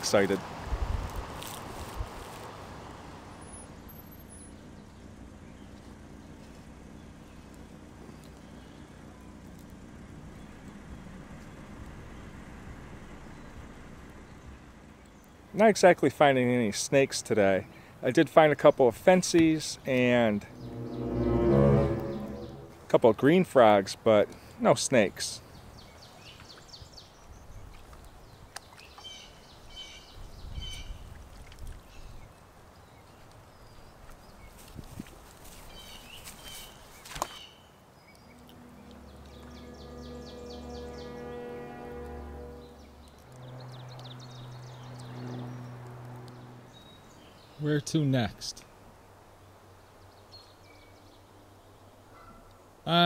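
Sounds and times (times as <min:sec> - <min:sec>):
car engine rumble and road noise: 0:00.0 - 0:15.6, 0:37.9 - 0:47.6
songbird chirping: 0:18.7 - 0:22.8, 0:35.5 - 0:47.9
low outdoor rumble: 0:20.0 - 0:22.9, 0:38.0 - 0:47.6.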